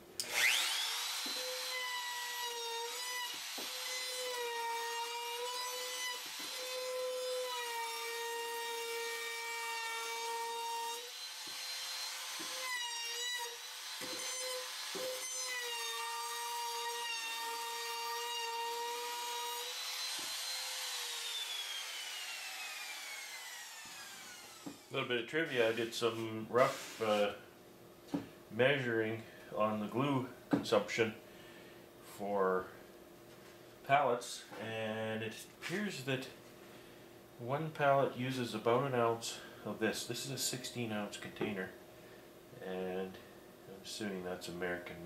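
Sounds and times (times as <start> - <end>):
router winding down: 0.2 - 1.8, 19.7 - 24.9
router whining: 0.2 - 7.3, 10.6 - 15.9, 18.6 - 25.0.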